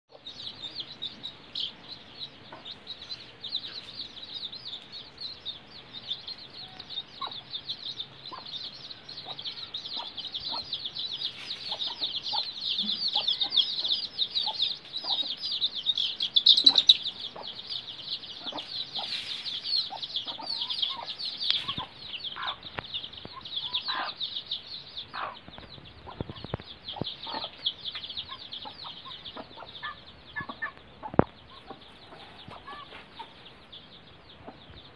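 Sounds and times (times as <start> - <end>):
chicks peeping: 0.1 - 34.9.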